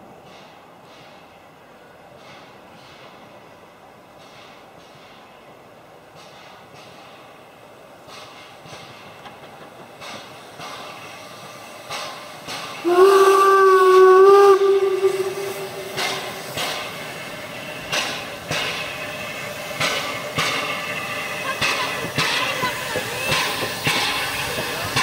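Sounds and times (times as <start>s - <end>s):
steam engine exhaust beats: 8.1s - 25.0s
steam locomotive whistle: 12.8s - 16.6s.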